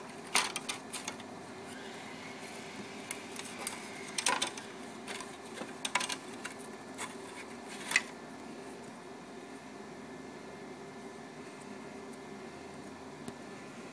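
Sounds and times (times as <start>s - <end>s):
faint background hum: 0.0s - 13.9s
light clicks taps and scrapes: 3.4s - 8.1s.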